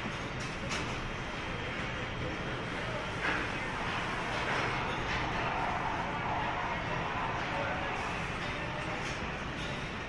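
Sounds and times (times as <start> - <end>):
factory machinery rumble and hiss: 0.0 - 10.0.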